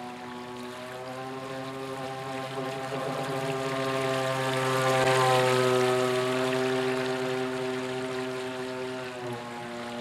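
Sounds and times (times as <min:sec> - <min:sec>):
model speedboat motor hum: 0:00.0 - 0:10.0
water rushing off hull: 0:00.0 - 0:10.0.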